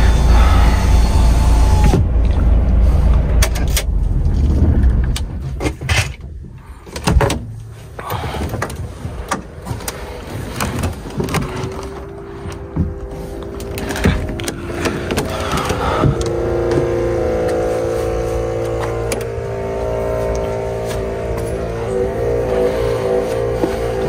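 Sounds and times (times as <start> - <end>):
motor whine: 0.0 - 3.4, 9.1 - 24.0
diesel truck engine rumble: 0.0 - 24.0.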